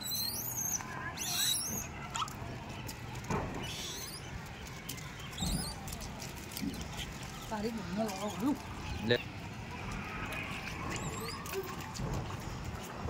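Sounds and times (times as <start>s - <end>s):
high-pitched squeaky chirping: 0.0s - 2.3s, 3.6s - 4.3s, 5.4s - 5.8s
faint ticks and rustles: 0.6s - 13.0s.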